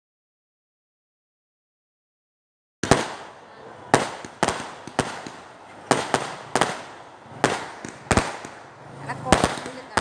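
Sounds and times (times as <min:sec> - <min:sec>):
fireworks exploding: 0:02.8 - 0:10.0.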